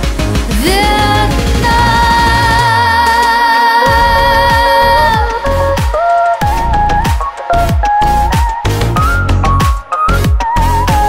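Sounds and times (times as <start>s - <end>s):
woman singing a long high note: 0.6s - 6.4s.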